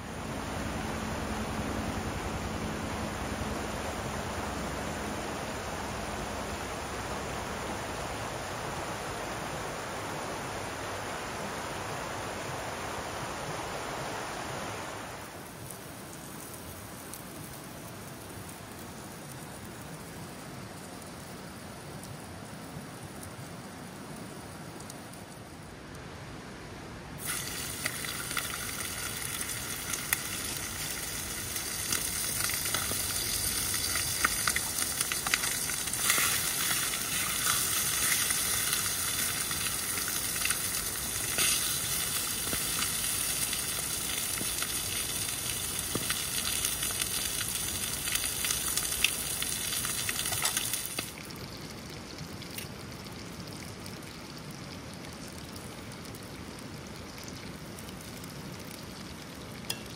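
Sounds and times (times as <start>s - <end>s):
fire pops and crackles: 15.5s - 20.0s, 27.2s - 59.9s
chicken sizzling in skillet: 27.2s - 51.2s.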